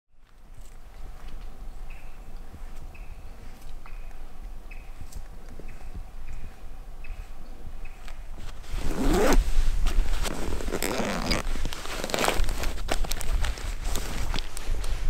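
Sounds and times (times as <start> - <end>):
zip-like scraping strokes: 8.6 - 9.6, 10.2 - 12.4.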